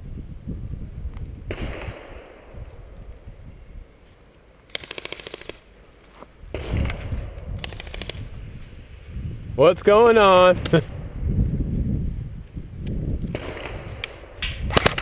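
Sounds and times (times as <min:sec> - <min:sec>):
airsoft gun full-auto bursts: 0:04.7 - 0:05.7, 0:07.6 - 0:08.3.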